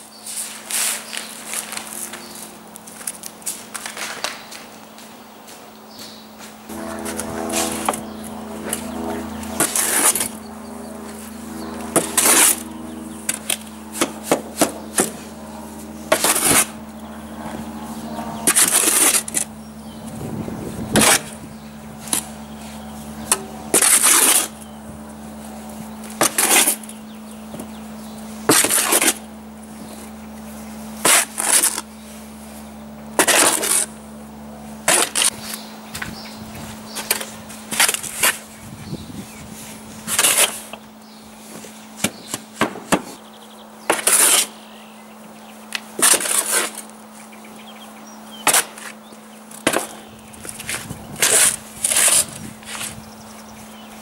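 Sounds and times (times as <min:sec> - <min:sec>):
spade scraping in wheelbarrow: 0:06.8 - 0:08.9, 0:09.5 - 0:10.4, 0:11.9 - 0:12.7, 0:16.1 - 0:16.8, 0:18.4 - 0:19.5, 0:20.9 - 0:21.4, 0:22.0 - 0:24.7, 0:26.2 - 0:27.0, 0:28.4 - 0:29.3, 0:31.0 - 0:31.9, 0:33.2 - 0:34.0, 0:34.8 - 0:35.6, 0:40.0 - 0:40.7, 0:43.9 - 0:44.6, 0:46.0 - 0:46.9, 0:49.6 - 0:53.0
blade grating against metal: 0:09.6 - 0:10.4, 0:11.9 - 0:12.7, 0:16.1 - 0:16.8, 0:18.0 - 0:19.5, 0:21.0 - 0:21.4, 0:23.2 - 0:24.7, 0:26.2 - 0:26.9, 0:31.0 - 0:31.8, 0:34.9 - 0:35.4, 0:43.9 - 0:44.6, 0:50.6 - 0:53.0.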